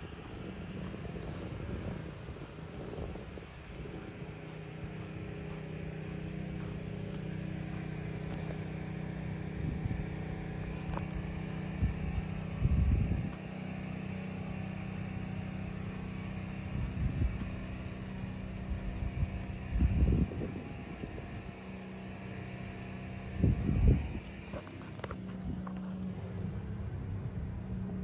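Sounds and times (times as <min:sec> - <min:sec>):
wind gusts on microphone: 0:00.0 - 0:05.6, 0:09.5 - 0:13.4, 0:16.6 - 0:17.6, 0:18.4 - 0:21.6, 0:23.2 - 0:27.8.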